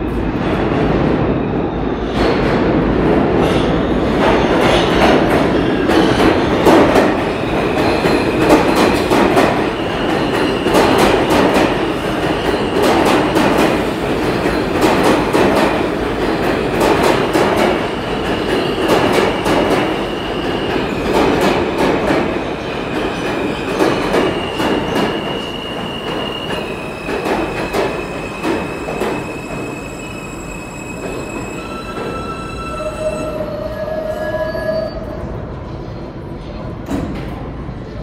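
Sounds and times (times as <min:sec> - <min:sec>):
train brakes squealing: 0:05.4 - 0:13.8, 0:22.6 - 0:35.3.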